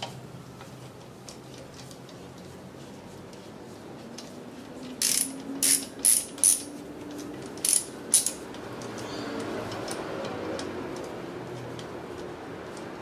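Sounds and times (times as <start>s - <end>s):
ratchet wrench clicking: 5.0s - 6.7s, 7.5s - 9.0s.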